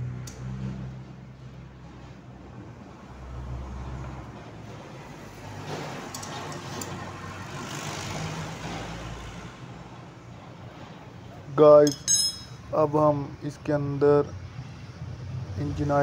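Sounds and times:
vehicle passing by: 0.0 - 11.5, 13.7 - 16.0
spanner clicking on bolt: 6.1 - 6.9.

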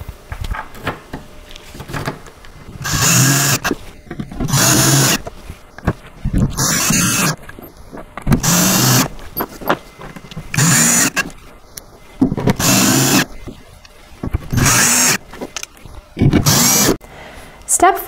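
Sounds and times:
cordless drill driving screws: 2.8 - 3.8, 4.4 - 5.3, 6.5 - 7.4, 8.4 - 9.1, 10.5 - 11.3, 12.5 - 13.3, 14.5 - 15.2, 16.2 - 17.0.

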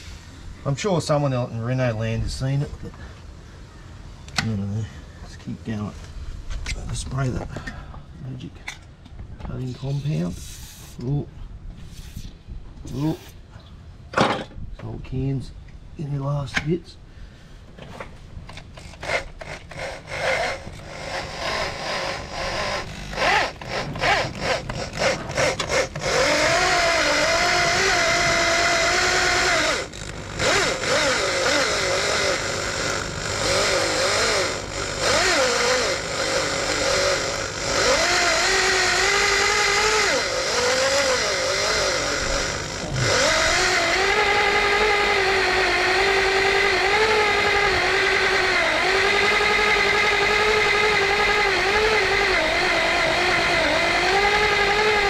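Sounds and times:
electric drill whining: 18.5 - 55.0.

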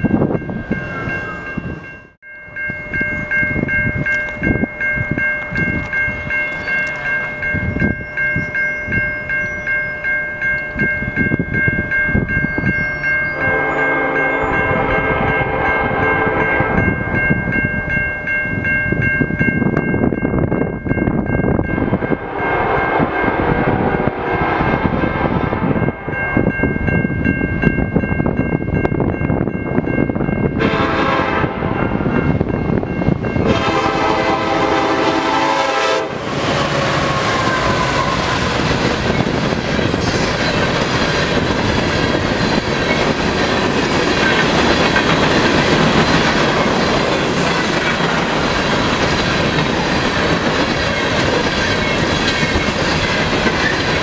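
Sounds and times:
crossing bell ringing: 0.0 - 54.0
train rumble: 0.0 - 54.0
locomotive air horn blasts: 13.4 - 16.9, 21.8 - 26.1, 30.6 - 32.0, 33.4 - 38.6.

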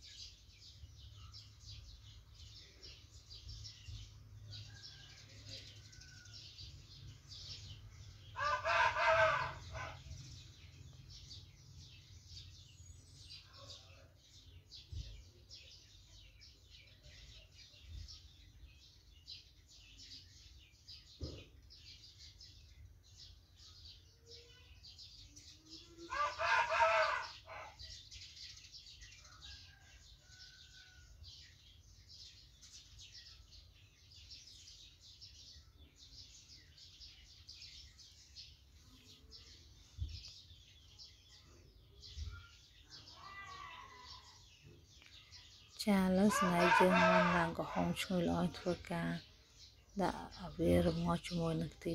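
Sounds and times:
rooster crowing: 8.4 - 10.1, 26.1 - 27.8, 46.3 - 48.0.

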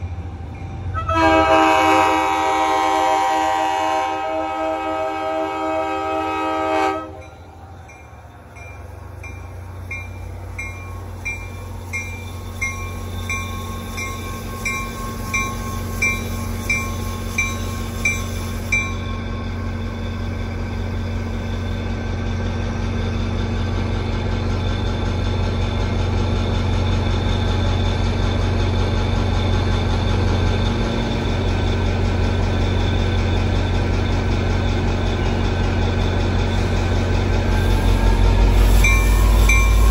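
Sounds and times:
locomotive engine rumbling: 0.0 - 39.9
locomotive horn: 0.9 - 7.4, 37.4 - 39.9
crossing bell dinging: 7.1 - 21.6, 38.1 - 39.9.

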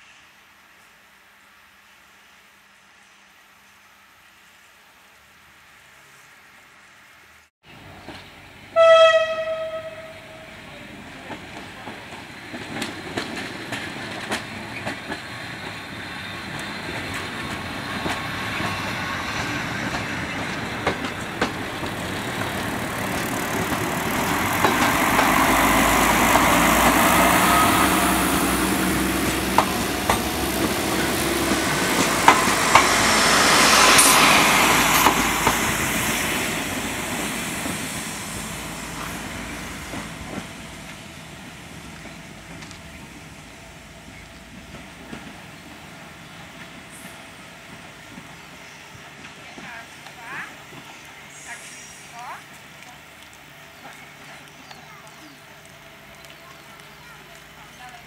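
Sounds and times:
diesel railbus engine: 7.7 - 58.0
train horn blast: 8.7 - 10.7, 26.8 - 30.4
wheels clicking over rail joints: 10.7 - 50.9
high-pitched squeal: 23.9 - 36.7.

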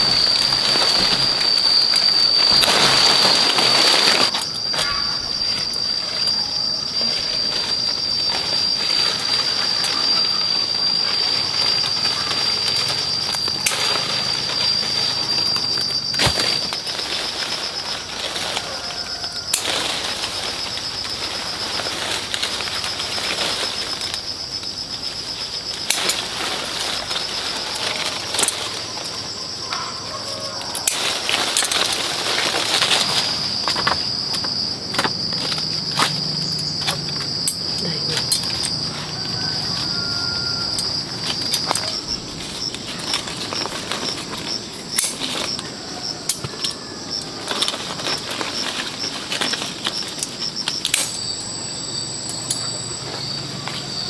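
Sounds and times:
high-pitched insect drone: 0.0 - 54.0
leaves and branches rustling: 0.0 - 54.0.

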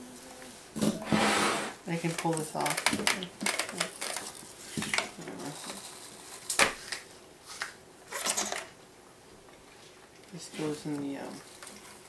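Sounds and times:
plastic clicks and clatter: 2.1 - 5.8.

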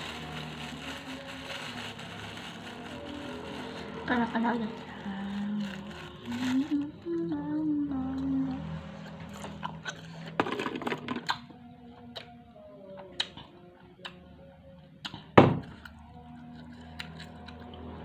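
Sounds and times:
crisp chewing crackles: 0.0 - 7.4, 15.1 - 18.0.

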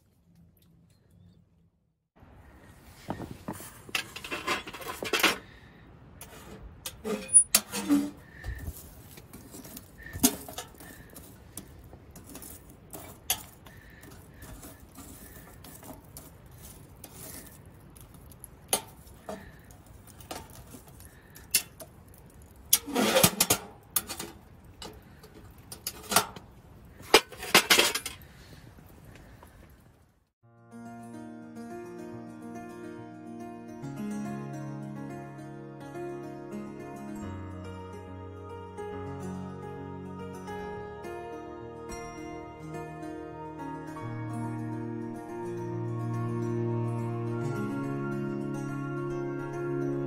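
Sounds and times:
metal clanks on wood stove: 6.2 - 8.6, 9.7 - 16.4, 17.1 - 28.3.

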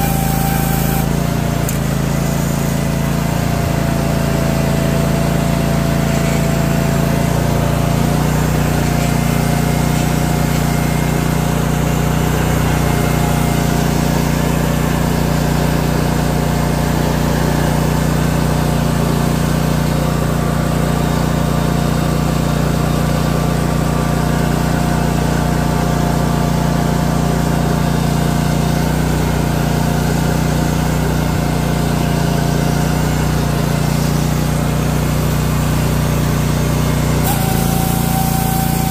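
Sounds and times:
thin steady whine: 0.0 - 1.8, 37.2 - 38.9
trencher engine running: 0.0 - 38.9.

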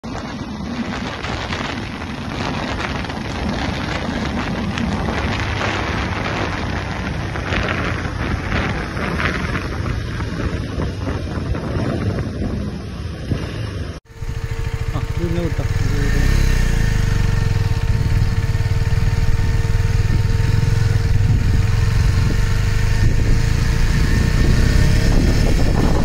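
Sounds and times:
wind buffeting microphone: 0.0 - 26.0
motorcycle engine running: 14.1 - 26.0.

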